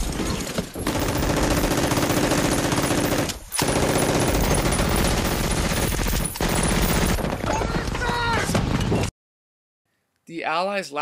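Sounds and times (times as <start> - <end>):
automatic gunfire bursts: 0.8 - 7.5.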